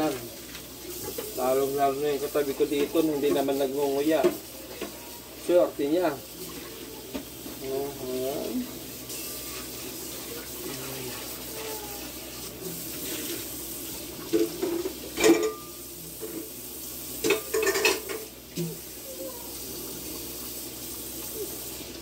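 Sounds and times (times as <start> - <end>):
stew simmering bubbling hiss: 0.0 - 22.0.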